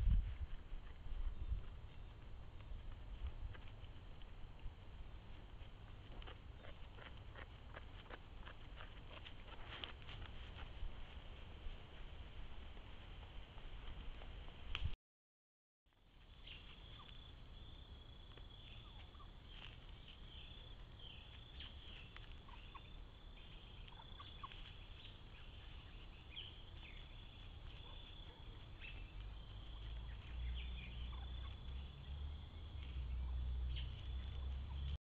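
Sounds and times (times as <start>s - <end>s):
turkeys calling: 18.6s - 19.8s, 21.0s - 32.2s, 32.8s - 34.9s.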